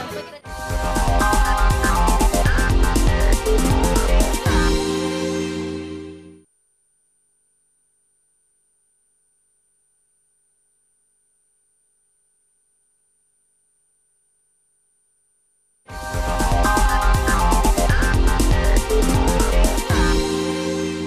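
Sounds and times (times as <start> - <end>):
electronic title music: 0.5 - 6.3, 15.9 - 21.0.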